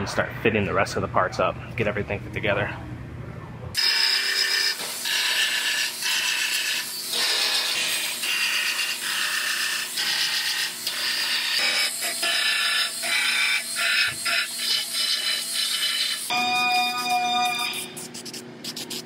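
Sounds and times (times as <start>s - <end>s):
power tool whining in bursts: 3.8s - 17.8s.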